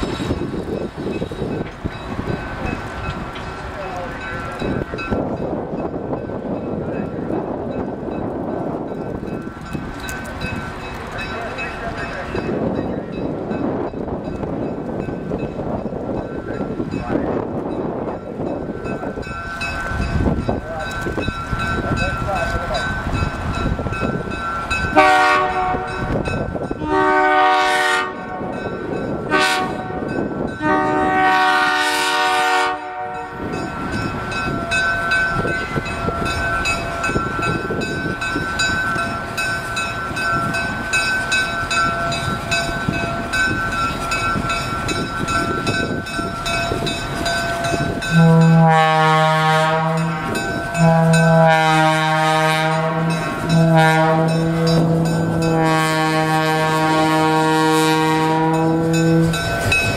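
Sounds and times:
diesel train rumbling: 0:00.0 - 0:59.9
wind: 0:00.0 - 0:59.9
diesel locomotive horn blasts: 0:24.9 - 0:26.2, 0:26.8 - 0:28.6, 0:29.3 - 0:33.6, 0:48.0 - 0:59.4.

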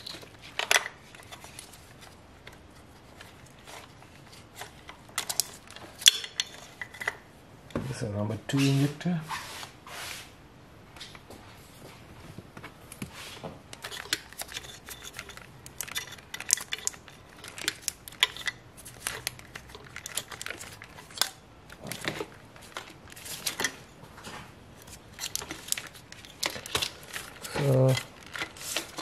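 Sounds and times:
plastic wiring loom rustling: 0:00.0 - 0:07.2, 0:13.2 - 0:29.0.

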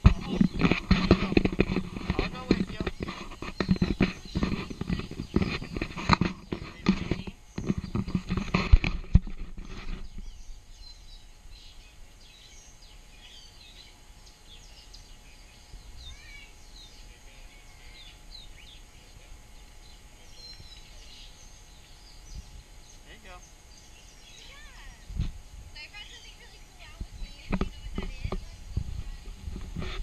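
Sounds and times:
knocks and rustling: 0:00.0 - 0:10.3, 0:27.3 - 0:30.0
small birds chirping: 0:00.0 - 0:30.0.

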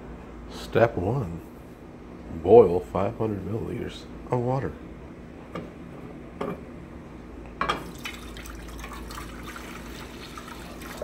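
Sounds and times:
water pouring into saucepan: 0:07.8 - 0:11.0.

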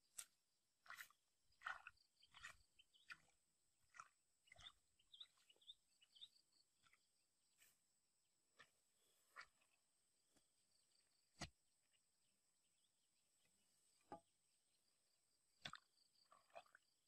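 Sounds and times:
stick scraping in mud: 0:00.1 - 0:03.3.

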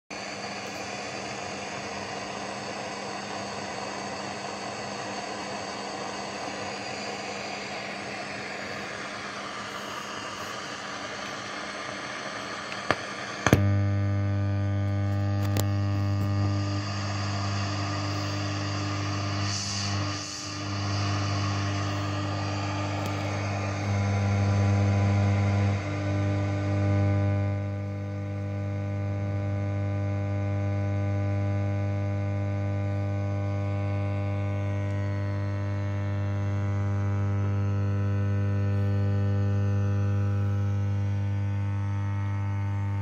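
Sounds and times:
steady buzzing hum: 0:00.1 - 0:43.0
radio static hiss: 0:00.2 - 0:29.2
radio knob click: 0:12.7 - 0:13.7.

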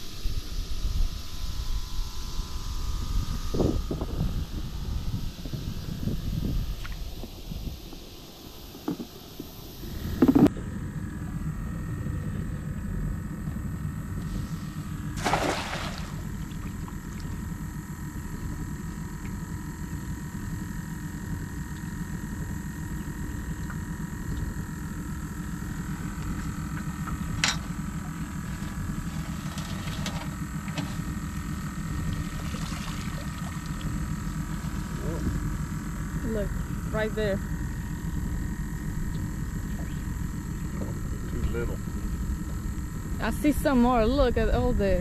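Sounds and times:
low motor hum: 0:00.0 - 0:45.0
water pouring off a net: 0:15.2 - 0:16.2
cast net splashing into water: 0:15.2 - 0:16.6.

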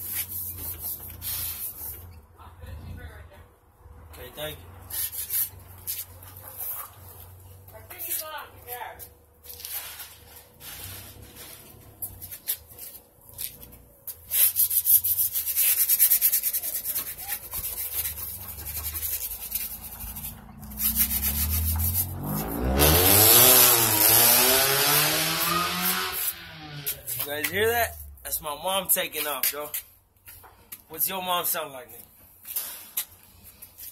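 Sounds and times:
hand rubbing strokes: 0:00.0 - 0:02.0, 0:04.9 - 0:07.3, 0:09.5 - 0:23.2, 0:23.8 - 0:28.2
car engine revving: 0:19.5 - 0:27.2.

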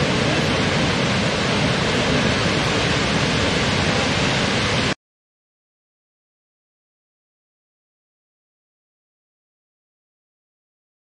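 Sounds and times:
waterfall rushing: 0:00.0 - 0:05.0.

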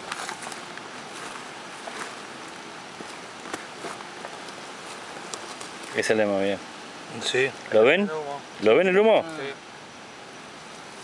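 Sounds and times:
outdoor background hiss: 0:00.0 - 0:11.0
faint rustling clicks: 0:03.0 - 0:06.0.

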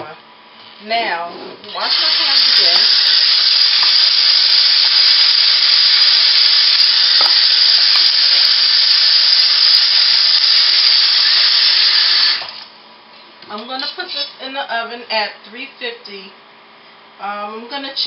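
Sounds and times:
faucet water splashing in sink: 0:01.8 - 0:12.7.

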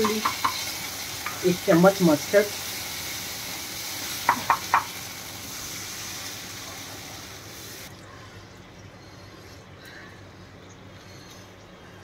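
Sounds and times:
water poured into hot oil sizzling: 0:00.0 - 0:07.9.

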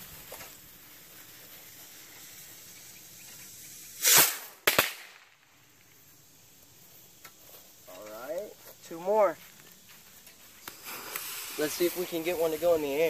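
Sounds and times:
sharp pops: 0:02.8 - 0:06.0, 0:10.2 - 0:12.6
bottle rocket rushing burst: 0:03.8 - 0:05.0.

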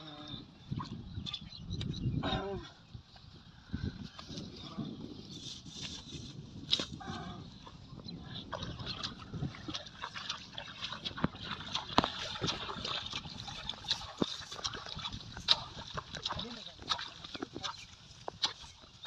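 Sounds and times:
feet wading in water: 0:05.8 - 0:19.0.

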